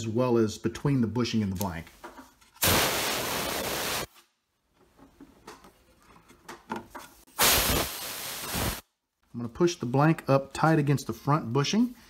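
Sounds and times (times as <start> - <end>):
compressed air blasts: 2.6 - 4.1, 7.3 - 8.8.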